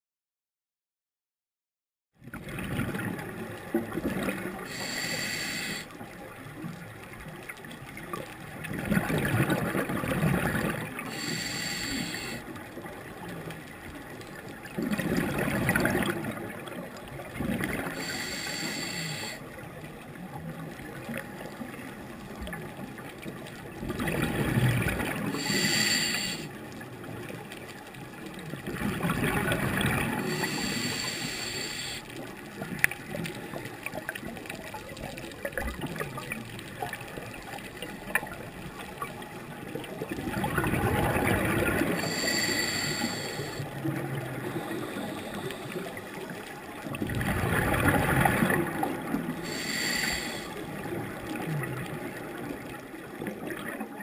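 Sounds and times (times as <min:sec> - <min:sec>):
steady underwater hiss: 0:03.0 - 0:53.6
regulator inhale hiss with whine: 0:04.6 - 0:06.0, 0:11.0 - 0:12.5, 0:17.8 - 0:19.5, 0:25.2 - 0:26.6, 0:30.2 - 0:32.2, 0:41.9 - 0:46.3, 0:49.4 - 0:50.8
small clicks: 0:32.0 - 0:39.1.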